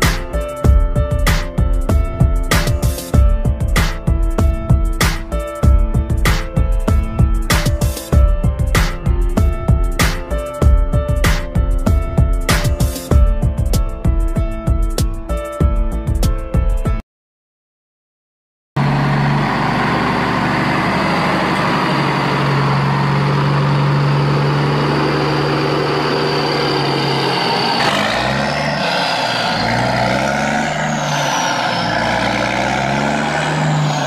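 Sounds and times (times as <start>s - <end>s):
motor running and revving: 18.8s - 34.0s.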